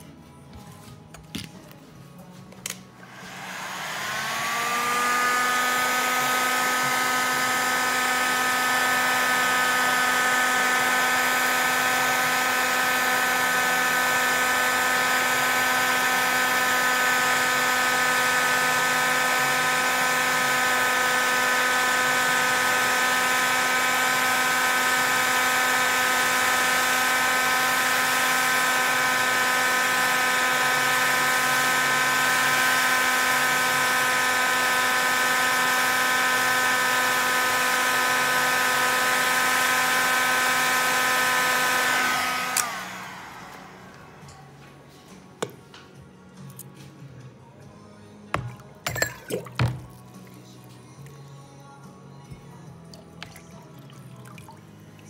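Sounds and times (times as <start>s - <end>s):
heat gun fan whine: 2.4s - 44.7s.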